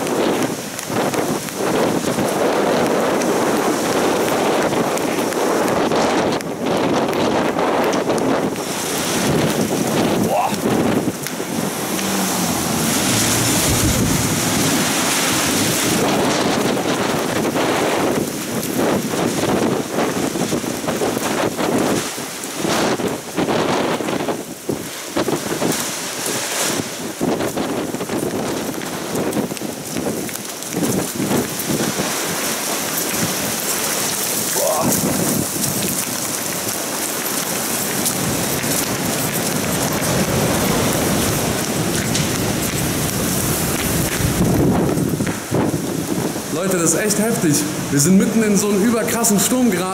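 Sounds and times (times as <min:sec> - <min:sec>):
low thunder rumbles: 0:00.0 - 0:22.0
rain: 0:00.0 - 0:49.9
wind gusting against microphone: 0:00.0 - 0:49.9.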